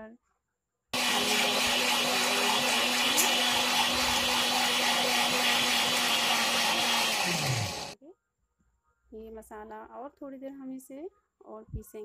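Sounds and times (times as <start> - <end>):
mixer grinder running: 1.0 - 8.0.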